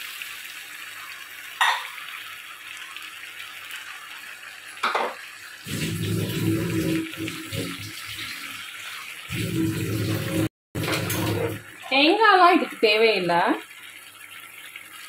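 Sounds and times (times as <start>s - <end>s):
water pouring into a pan: 0.0s - 15.0s.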